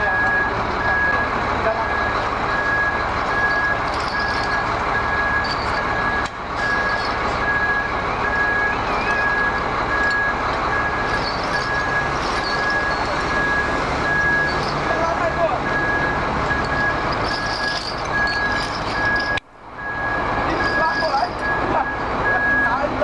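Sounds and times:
engine running: 0.0 - 23.0
reversing alarm beeping: 0.0 - 23.0
steel chain clinking: 2.6 - 7.6, 9.0 - 15.4, 16.4 - 19.4, 20.5 - 21.6.

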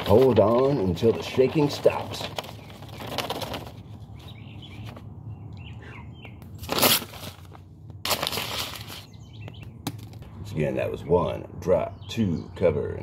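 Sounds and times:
paper rustling and crinkling: 0.0 - 5.1, 6.5 - 9.1
faint bird chirps: 4.1 - 6.4.

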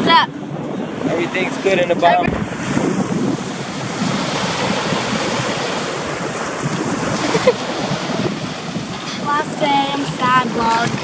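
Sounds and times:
small waves breaking on beach: 0.0 - 11.0
wind buffeting microphone: 0.0 - 11.0.

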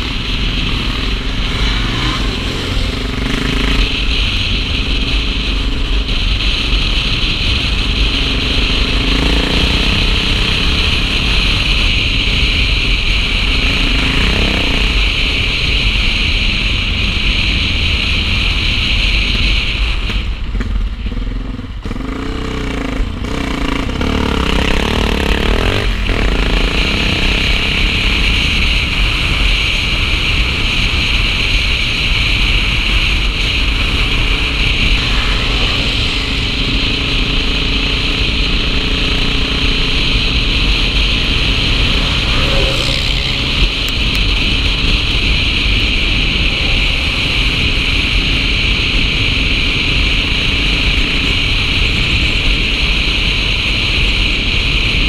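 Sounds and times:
motorcycle engine running: 0.0 - 55.0
wind rushing over microphone: 0.0 - 55.0.

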